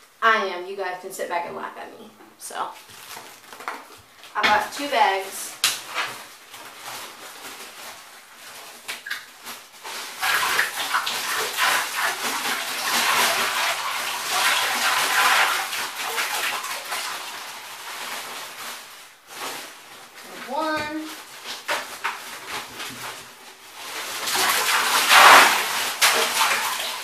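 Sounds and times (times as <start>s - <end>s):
plastic bag handling: 2.8s - 11.3s, 16.9s - 27.0s
ice rattling and splashing into water: 8.9s - 19.0s, 23.8s - 27.0s.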